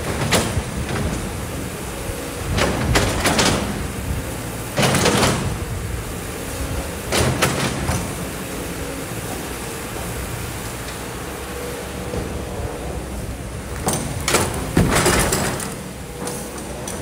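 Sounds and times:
excavator diesel engine: 0:00.0 - 0:17.0.

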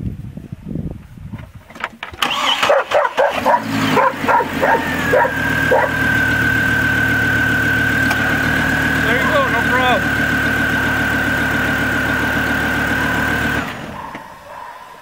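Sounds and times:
truck engine cranking and starting: 0:01.4 - 0:14.5
dog barking: 0:02.6 - 0:06.1, 0:13.9 - 0:15.0.

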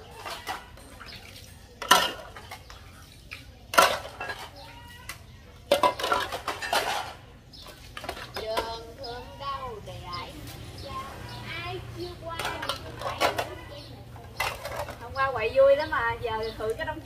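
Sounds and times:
dishes clinking in water: 0:00.0 - 0:08.9.

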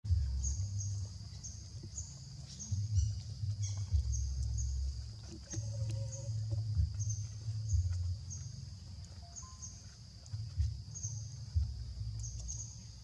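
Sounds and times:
wind rumble on microphone: 0:00.1 - 0:09.6, 0:10.4 - 0:13.0.

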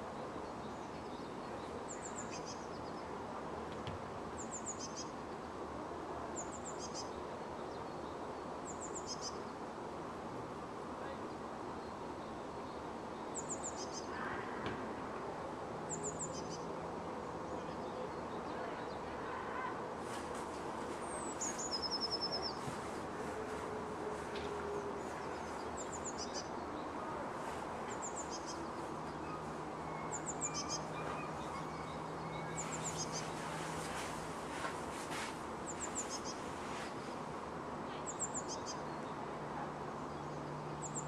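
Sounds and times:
songbirds chirping: 0:00.0 - 0:41.0
distant city hum: 0:18.6 - 0:38.8.

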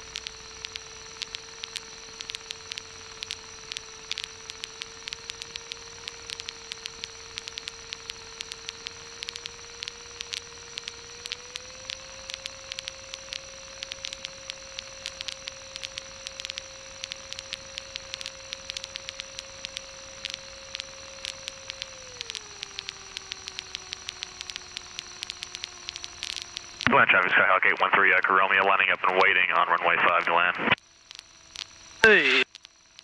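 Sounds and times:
crackling static clicks: 0:00.0 - 0:33.0
constant hiss: 0:26.9 - 0:30.8, 0:32.0 - 0:32.4.

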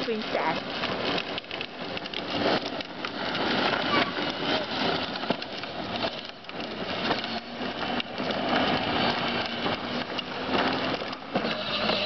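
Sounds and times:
plastic wheels rolling on asphalt: 0:00.0 - 0:12.0.

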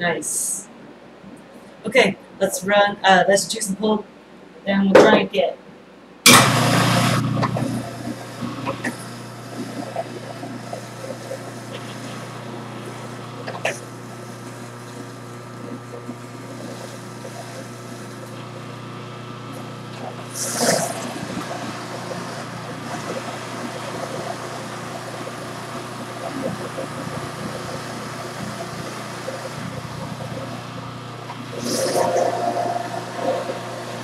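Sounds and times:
electric juicer motor humming: 0:06.3 - 0:34.0.

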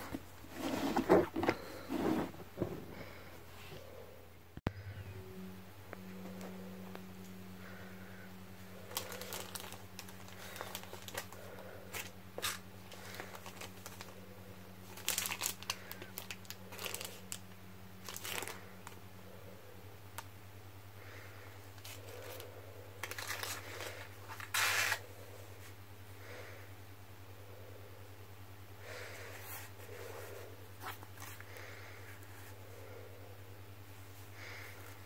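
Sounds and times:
steady low hum: 0:00.0 - 0:35.0
paper and plastic packet rustling: 0:08.8 - 0:14.2, 0:14.8 - 0:19.0, 0:23.0 - 0:25.0.

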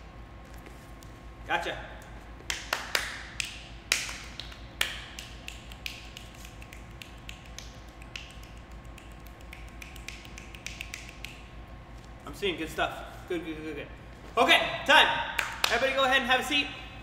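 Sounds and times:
hand taps and clicks: 0:02.4 - 0:11.4.

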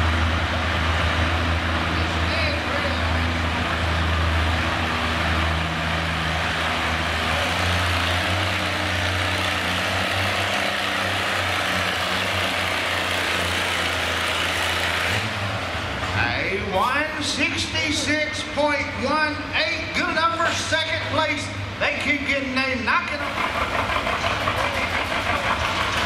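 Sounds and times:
tractor engine under load: 0:00.0 - 0:26.0.

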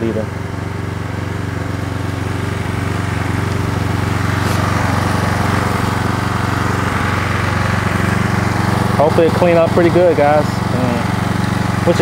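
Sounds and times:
pressure washer engine humming: 0:00.0 - 0:12.0
water jet spraying hiss: 0:02.3 - 0:12.0.

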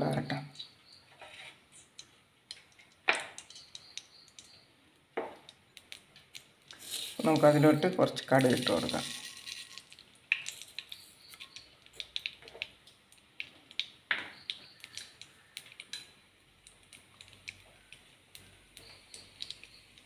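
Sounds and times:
mustard seeds popping in oil: 0:01.8 - 0:20.0
faint oil sizzle: 0:06.6 - 0:20.0.

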